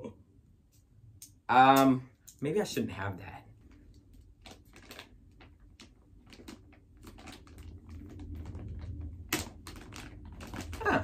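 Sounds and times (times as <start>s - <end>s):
plastic bag crinkling: 3.6s - 11.0s.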